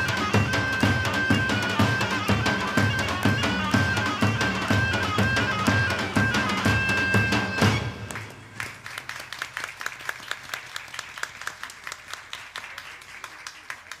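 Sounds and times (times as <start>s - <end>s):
music: 0.0s - 8.6s
audience clapping: 7.8s - 14.0s.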